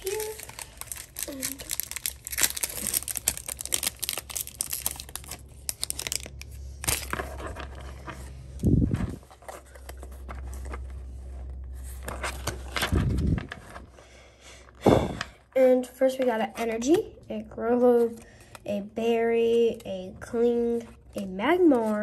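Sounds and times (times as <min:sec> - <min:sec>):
foil wrapper tearing and crinkling: 0:00.0 - 0:07.5.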